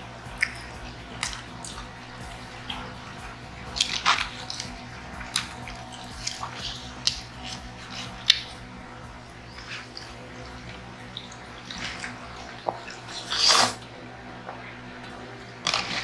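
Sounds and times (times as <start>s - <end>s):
steady low hum: 0.0s - 16.0s
mouth clicks and smacks: 0.2s - 2.0s
wet slurp of spaghetti: 9.4s - 13.9s.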